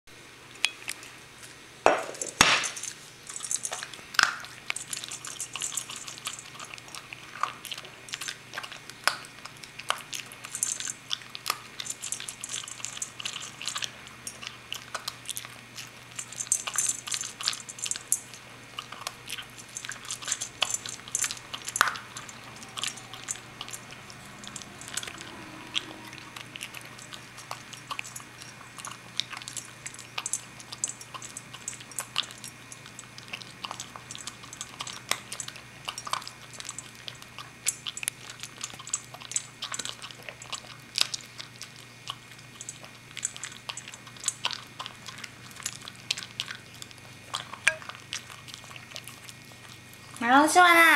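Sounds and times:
dog crunching dry kibble: 0.4s - 50.9s
bowl knocking on floor: 1.9s - 2.8s
kibble clicking against bowl: 2.2s - 49.4s.

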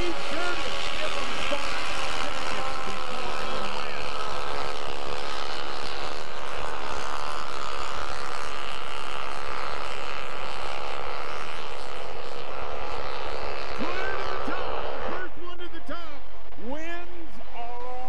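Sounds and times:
snow bike engines droning: 0.0s - 18.0s.

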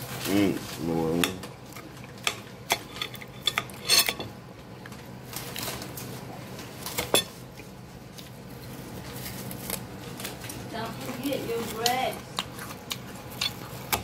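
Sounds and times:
cutlery clinking on ceramic bowl: 2.2s - 4.3s.

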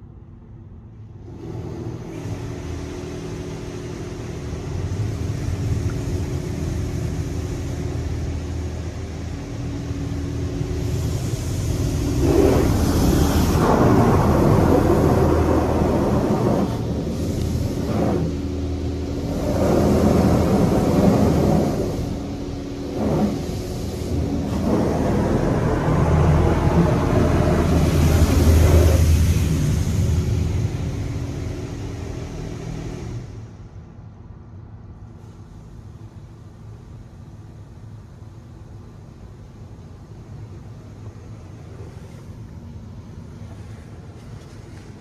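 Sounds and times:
pump hum: 0.0s - 45.0s
water jets drumming on car: 1.2s - 33.6s.

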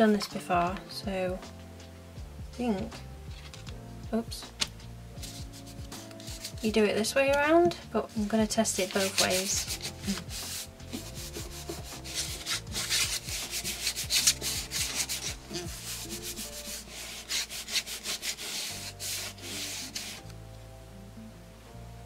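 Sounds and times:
palms rubbing on paper: 5.2s - 6.8s, 8.1s - 20.3s.

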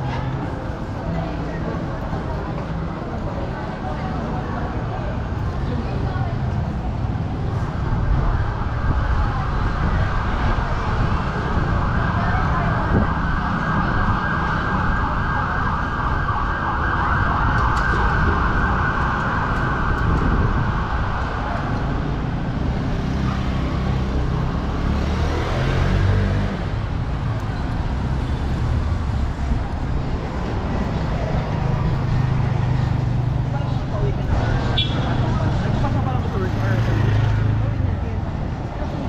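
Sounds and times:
traffic engines rumbling: 0.0s - 39.0s
vehicle passing: 22.0s - 27.2s.

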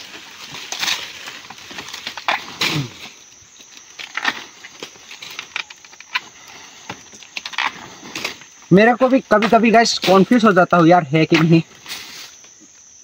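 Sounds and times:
leaves rustling and snapping: 0.0s - 12.9s
person's voice: 8.7s - 11.7s.

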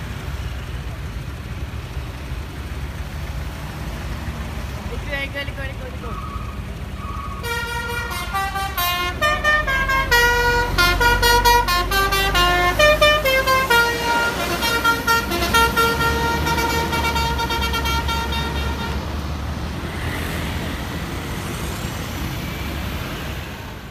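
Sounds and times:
diesel bus engine rumble: 0.0s - 23.9s
musical bus horn tune: 7.4s - 19.3s.

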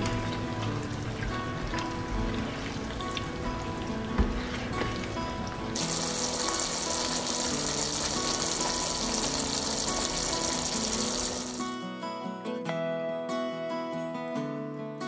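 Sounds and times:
curry sizzling in frying pan: 0.0s - 11.7s
guitar music: 0.0s - 15.0s.

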